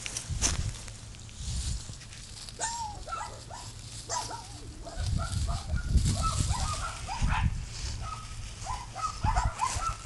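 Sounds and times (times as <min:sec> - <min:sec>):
rustling in dry leaves: 0:00.0 - 0:10.0
wind rumbling on microphone: 0:00.0 - 0:10.0
puppy yipping and whining: 0:02.6 - 0:10.0.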